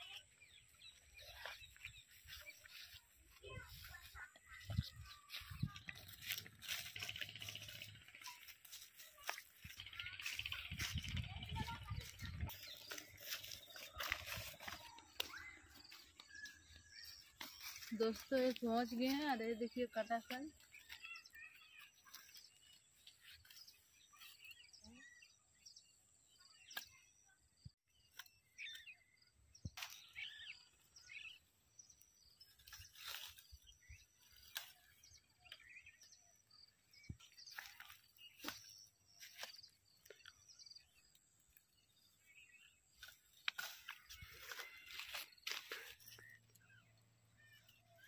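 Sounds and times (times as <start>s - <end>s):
faint birds chirping: 0.0s - 48.0s
plants snapping and rustling: 43.0s - 46.3s.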